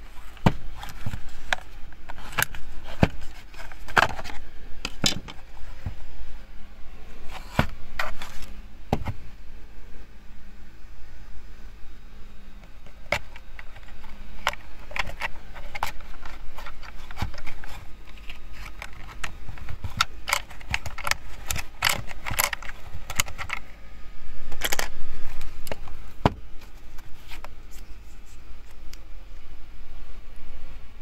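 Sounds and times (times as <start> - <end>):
plastic scraping: 0.0 - 6.1, 7.2 - 9.2, 12.6 - 23.7.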